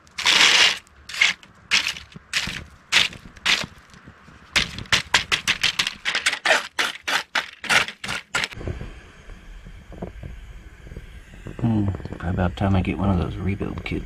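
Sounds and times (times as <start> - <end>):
wire brush scraping grill grate: 0.0 - 4.0, 4.6 - 8.6
low steady rush: 8.6 - 14.0.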